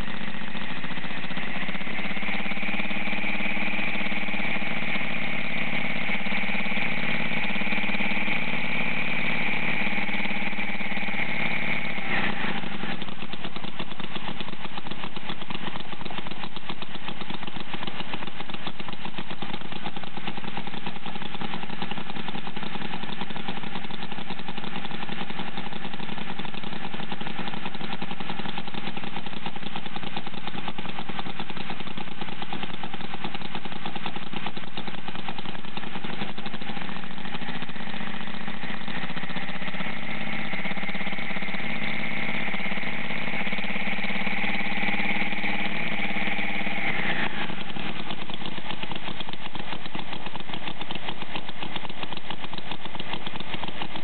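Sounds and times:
model engine running: 0.0 - 54.0
high whine: 38.0 - 48.4.

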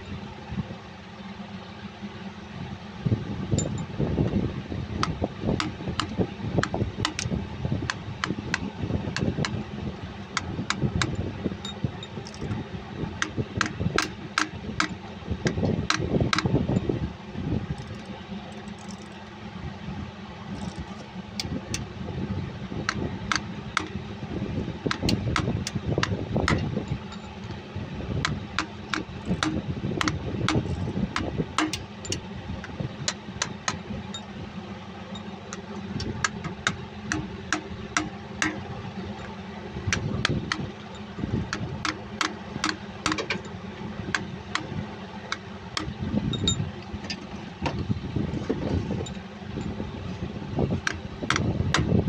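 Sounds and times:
low rumble: 2.4 - 52.0
sharp metallic taps: 5.0 - 9.6, 13.2 - 16.5, 22.9 - 24.0, 24.9 - 27.6, 28.2 - 34.3, 35.2 - 43.5.

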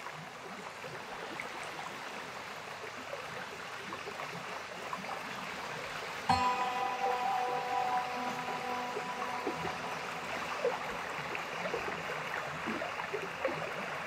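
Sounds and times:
struck note ringing chord: 6.3 - 12.4.

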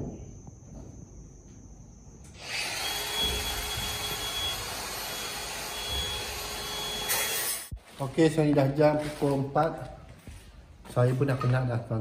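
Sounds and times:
small motor whirring with high whine: 2.2 - 7.7.

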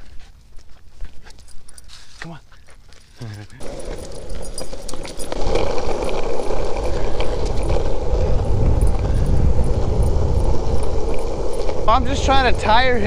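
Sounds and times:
skateboard wheels rolling on asphalt: 3.6 - 13.0
wind buffeting microphone: 3.6 - 13.0.

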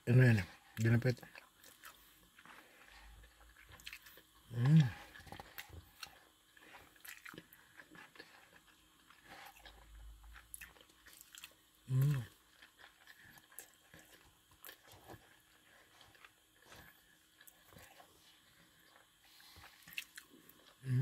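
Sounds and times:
chewing and mouth sounds: 0.4 - 21.0
person humming: 4.5 - 5.0, 11.9 - 12.3.

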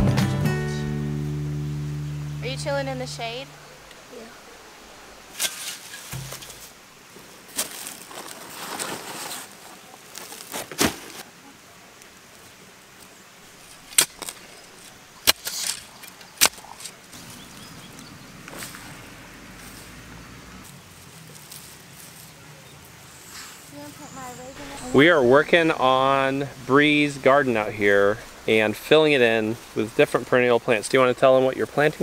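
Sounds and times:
scraping: 5.3 - 6.8
hands rustling in mulch: 5.3 - 11.2, 13.0 - 32.0.

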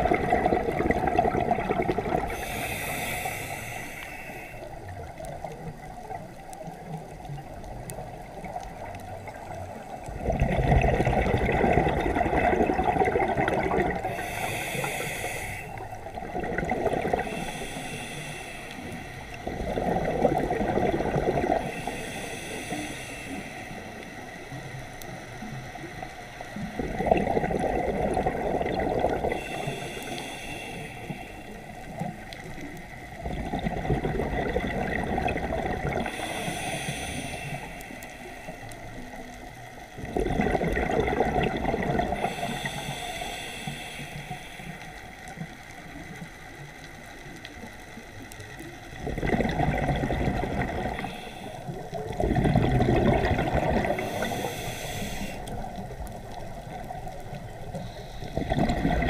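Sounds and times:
exhaled bubbles rushing: 0.0 - 2.5, 10.0 - 14.3, 15.8 - 17.5, 19.4 - 21.7, 26.7 - 29.5, 33.1 - 36.2, 40.0 - 42.3, 48.9 - 51.1, 51.7 - 54.5, 55.4 - 59.0
regulator inhale hiss: 2.1 - 10.2, 12.7 - 20.0, 21.0 - 28.3, 29.1 - 33.3, 35.3 - 40.0, 41.5 - 49.0, 50.3 - 52.2, 53.5 - 58.8.

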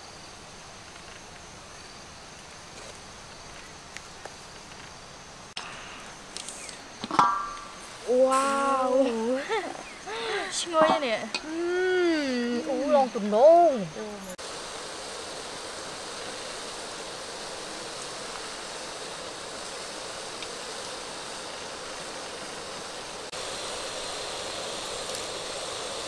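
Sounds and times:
water boiling in a wok: 5.4 - 26.0.

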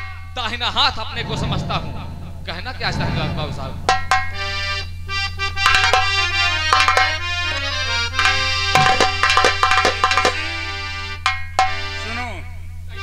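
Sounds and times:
low electrical hum: 0.0 - 5.6
sharp drum strokes: 1.0 - 4.9
harmonium melody: 5.1 - 11.2.

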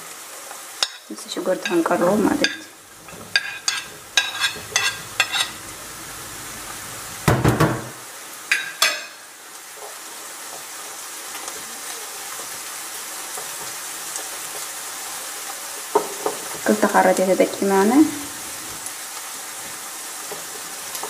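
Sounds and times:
frying sizzle: 0.0 - 21.0.

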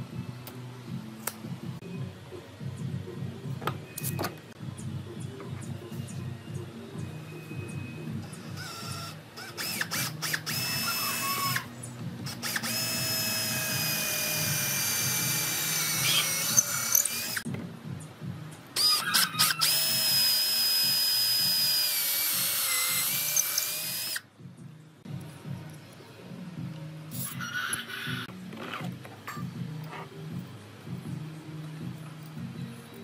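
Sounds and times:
cordless drill whining: 12.4 - 17.4, 19.4 - 24.2.

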